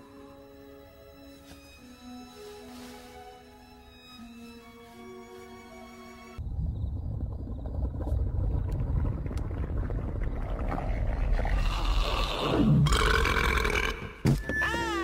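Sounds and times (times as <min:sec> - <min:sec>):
low rumble: 0:06.4 - 0:12.4.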